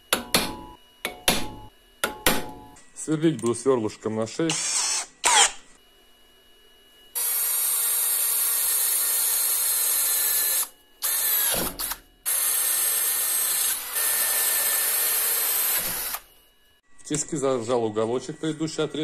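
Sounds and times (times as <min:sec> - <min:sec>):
drill boring through steel: 0:04.5 - 0:05.6, 0:07.2 - 0:16.3.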